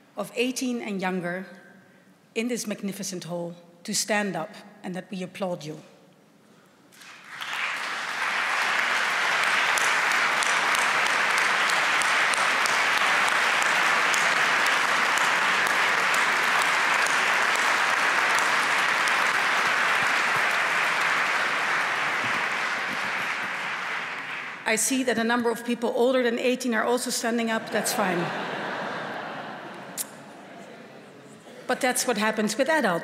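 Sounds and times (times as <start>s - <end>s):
large audience applauding: 6.9s - 24.7s, 27.7s - 30.1s.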